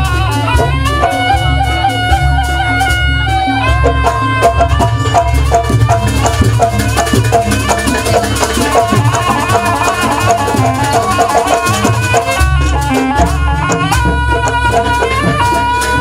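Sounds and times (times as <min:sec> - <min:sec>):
fast melody: 0:00.0 - 0:16.0
rattling percussion: 0:00.0 - 0:16.0.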